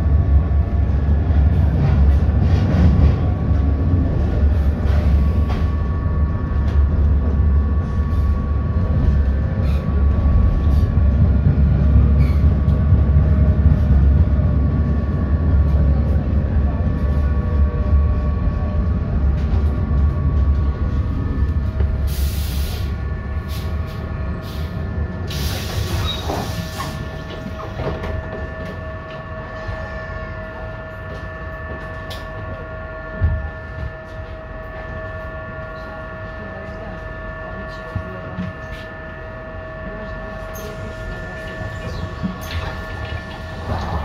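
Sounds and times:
steady equipment whine: 0.0s - 44.0s
tram running rumble: 0.0s - 44.0s
compressed air hissing: 22.1s - 22.9s.

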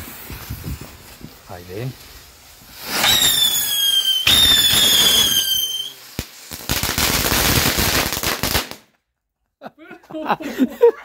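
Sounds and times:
firework hiss: 0.0s - 8.8s
firework crackling and sputtering: 0.0s - 8.9s
firework high whistles: 2.2s - 8.1s.

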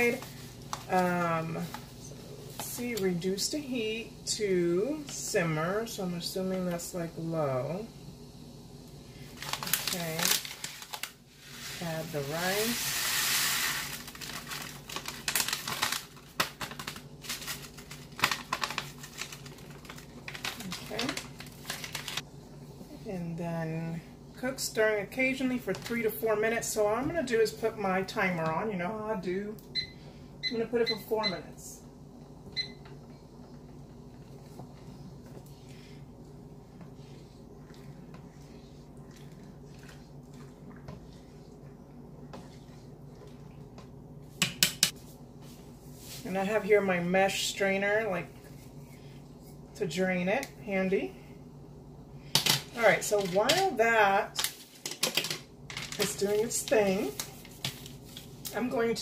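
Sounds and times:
low steady hum: 0.0s - 59.0s
plastic pouch crinkling: 9.3s - 11.6s, 13.7s - 22.2s.

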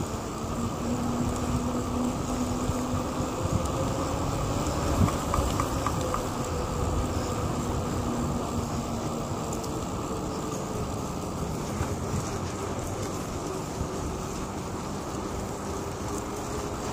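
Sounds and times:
tyres rumbling on asphalt: 0.0s - 16.9s
wind buffeting microphone: 0.0s - 16.9s.

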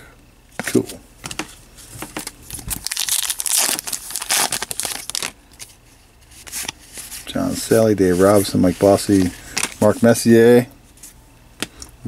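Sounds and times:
wrapper rustling and crackling: 2.4s - 7.3s.

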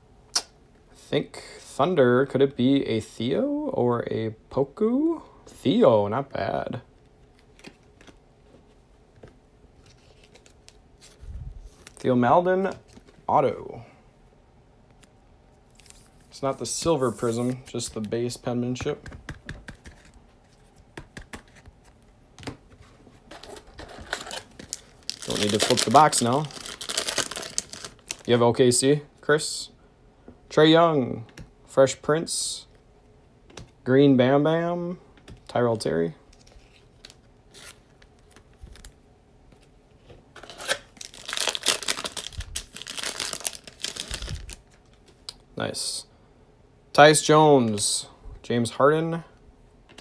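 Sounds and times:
trading cards clicking and rustling: 16.8s - 22.6s
foil wrapper tearing and crinkling: 23.4s - 28.3s, 40.4s - 44.7s.

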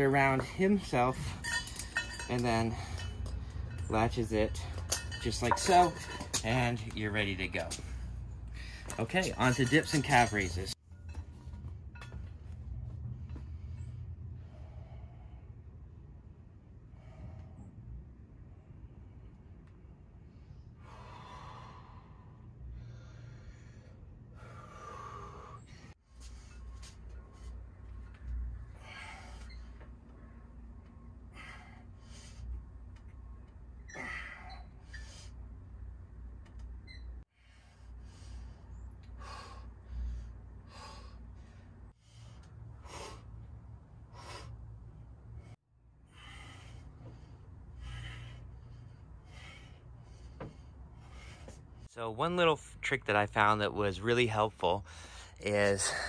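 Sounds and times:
steady low hum: 0.0s - 53.5s
man breathing hard: 7.8s - 9.0s, 13.4s - 15.8s, 16.8s - 18.0s, 20.3s - 30.0s, 31.1s - 32.8s, 37.3s - 51.9s, 54.8s - 56.0s.

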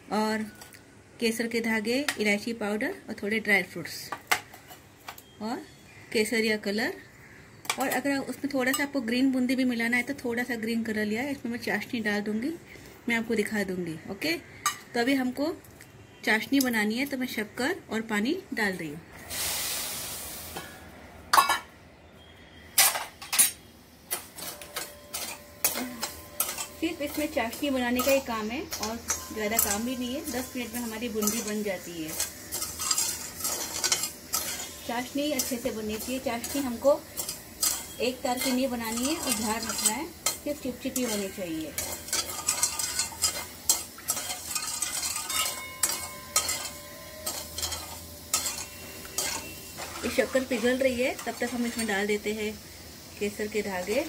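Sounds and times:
steel bowls clinking against pan: 22.8s - 52.1s.

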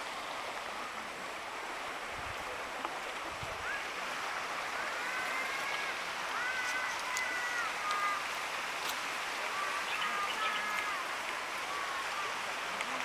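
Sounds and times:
stream water rushing: 0.0s - 13.0s.

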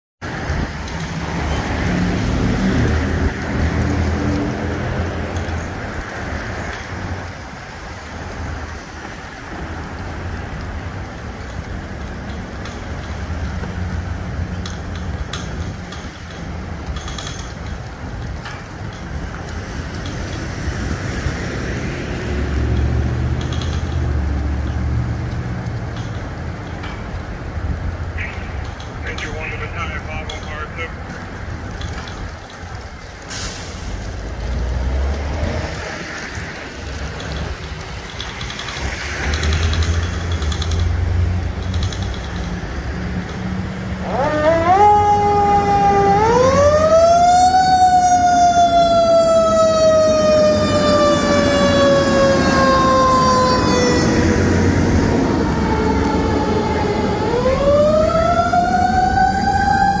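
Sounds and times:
fire engine rumble: 0.2s - 60.0s
siren wailing: 44.0s - 60.0s.

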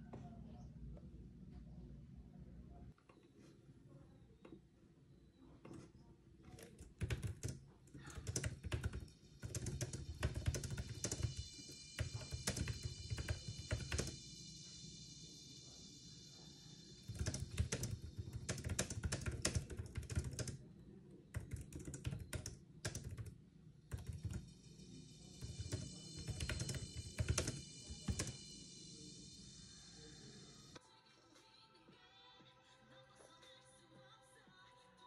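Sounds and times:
fast typing on keyboard: 6.5s - 14.2s, 17.0s - 20.6s, 21.3s - 24.6s, 25.4s - 28.4s.

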